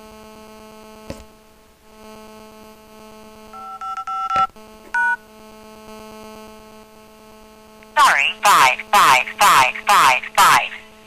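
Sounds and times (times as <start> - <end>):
electrical hum: 0.0 - 11.0
touch-tone keypad tones: 3.6 - 5.2.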